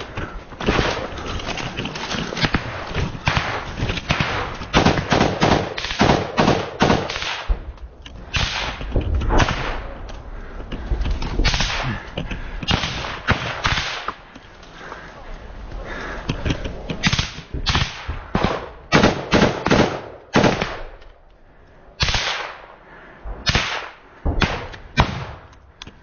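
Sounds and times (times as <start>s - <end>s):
dry branches rustling and snapping: 0.0s - 19.0s, 20.6s - 26.0s
gunfire cracks: 0.6s - 1.2s, 2.4s - 10.1s, 11.4s - 12.1s, 12.7s - 14.3s, 17.0s - 21.0s, 22.0s - 22.8s, 23.4s - 25.5s.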